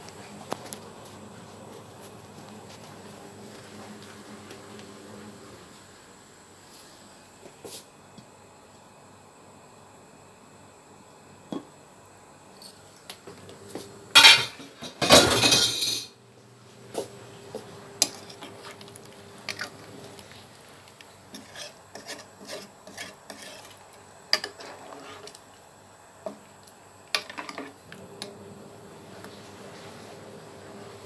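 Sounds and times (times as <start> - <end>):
pot lid scraping clatter: 21.3 - 23.8.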